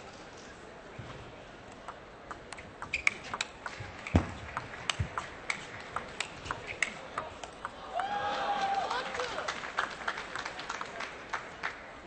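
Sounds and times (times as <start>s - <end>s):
ping pong ball clicking: 1.8s - 7.8s.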